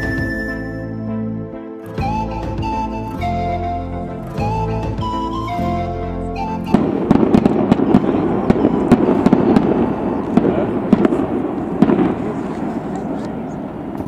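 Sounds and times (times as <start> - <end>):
music: 0.0 - 12.2
firecrackers banging and crackling: 6.7 - 14.0.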